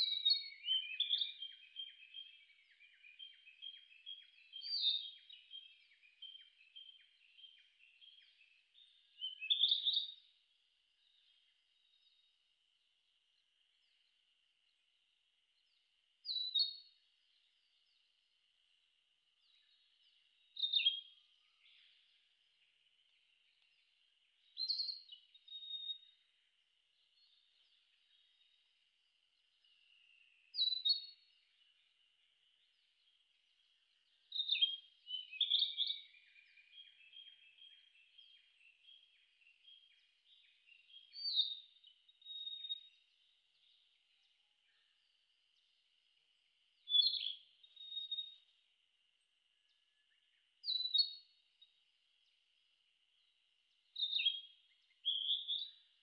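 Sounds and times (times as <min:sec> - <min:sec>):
bird singing whistled phrases: 0:24.6 - 0:26.1, 0:34.3 - 0:43.0, 0:46.8 - 0:48.4, 0:50.6 - 0:51.2, 0:54.0 - 0:55.9.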